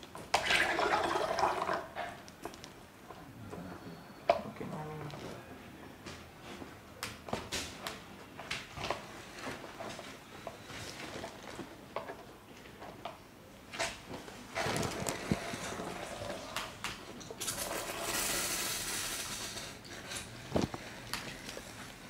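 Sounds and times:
plastic sheet rustling: 0:14.2 - 0:16.0.

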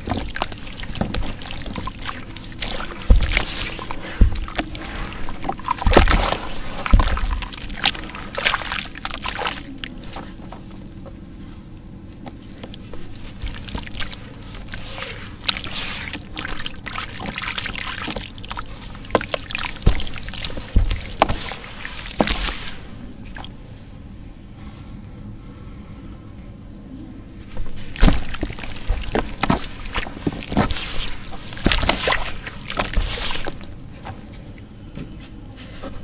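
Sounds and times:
hands splashing in water: 0:00.0 - 0:10.6, 0:12.4 - 0:23.5, 0:27.6 - 0:34.2.

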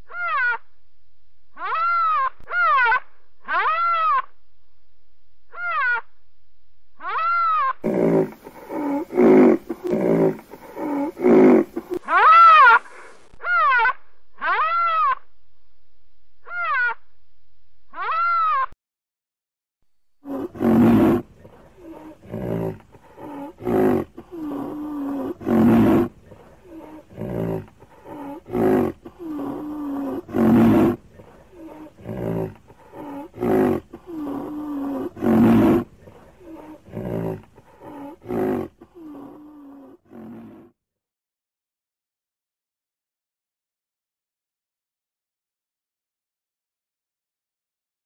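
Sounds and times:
rhinoceros low calls: 0:07.8 - 0:12.0, 0:20.2 - 0:40.7
rhinoceros snorting: 0:07.9 - 0:12.0, 0:20.2 - 0:40.7.

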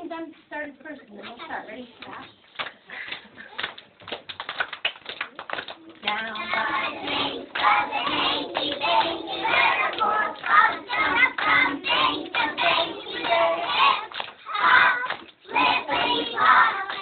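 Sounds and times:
hand claps: 0:02.0 - 0:15.4, 0:16.0 - 0:17.0
young children singing: 0:06.2 - 0:17.0.

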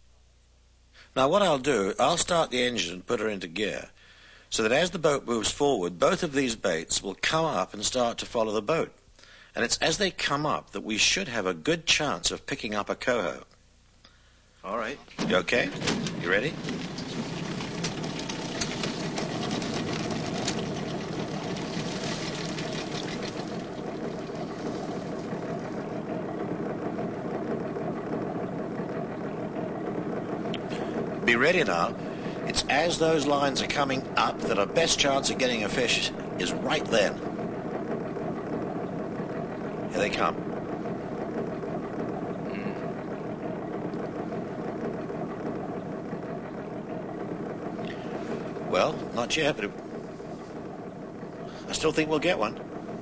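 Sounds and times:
boat engine running: 0:15.0 - 0:53.0.

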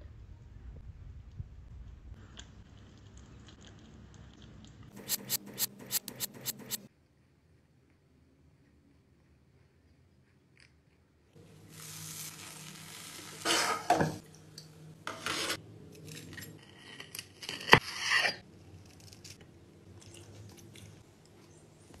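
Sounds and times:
utensils clattering on cookware: 0:13.4 - 0:14.2.

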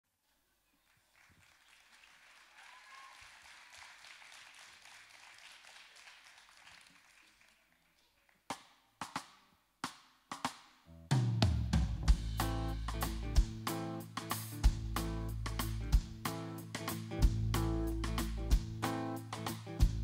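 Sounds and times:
faint audience applause: 0:00.8 - 0:08.6.

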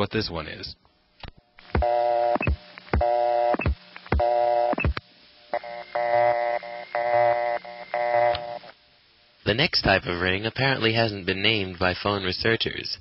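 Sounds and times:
telephone busy signal: 0:01.8 - 0:05.0, 0:05.6 - 0:08.7.

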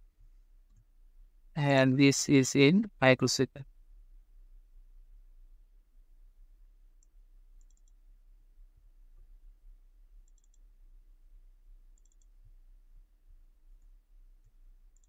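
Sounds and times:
low steady hum: 0:00.0 - 0:15.0
keyboard and mouse clicks: 0:07.0 - 0:08.0, 0:10.2 - 0:10.6, 0:12.0 - 0:12.3.

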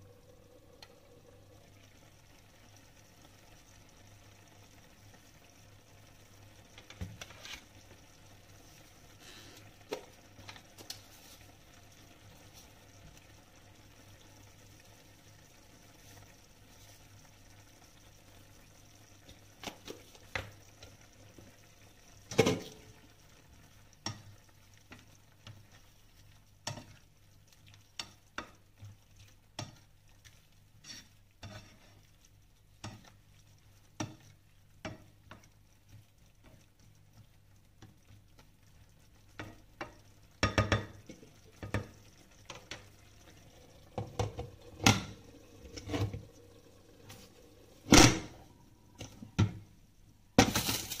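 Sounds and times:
faint sizzle: 0:00.0 - 0:51.0
spatula tapping and scraping pan: 0:24.0 - 0:25.8, 0:26.6 - 0:27.1, 0:27.7 - 0:32.1, 0:32.7 - 0:38.5, 0:39.3 - 0:43.0.

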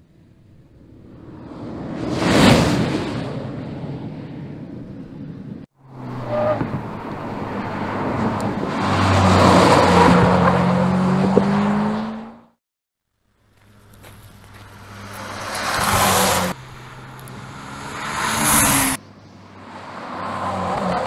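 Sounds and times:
loud tyre noise: 0:00.8 - 0:12.6, 0:13.3 - 0:21.0.

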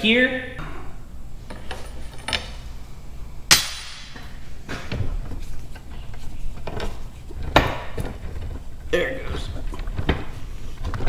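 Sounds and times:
tools knocking and clanking on metal: 0:03.5 - 0:08.7.

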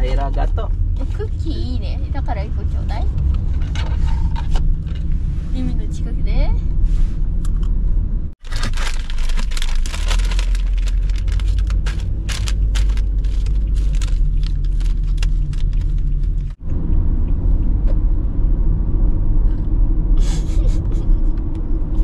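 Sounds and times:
car engine rumble: 0:00.0 - 0:22.0
foil wrapper crinkling: 0:08.4 - 0:16.6.

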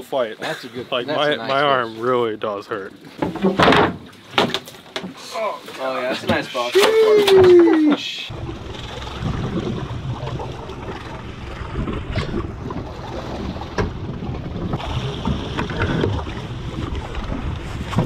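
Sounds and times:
wind buffeting microphone: 0:08.3 - 0:18.0.

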